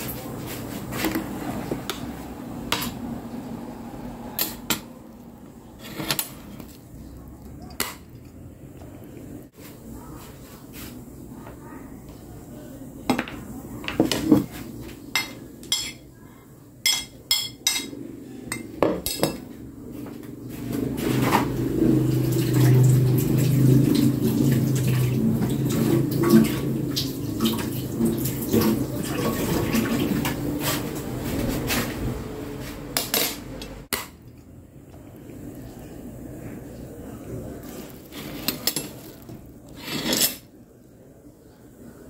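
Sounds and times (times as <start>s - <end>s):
plates clattering on tabletop: 13.1s - 14.5s, 18.6s - 19.5s.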